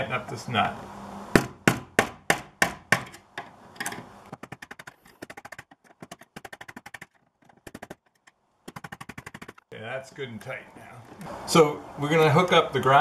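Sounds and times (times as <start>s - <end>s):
hammer tapping metal: 1.4s - 9.6s.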